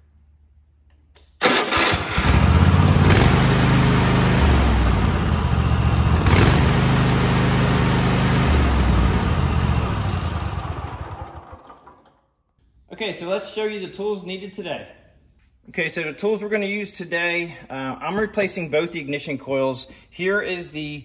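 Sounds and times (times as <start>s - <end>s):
lawn tractor engine running: 1.4s - 12.1s.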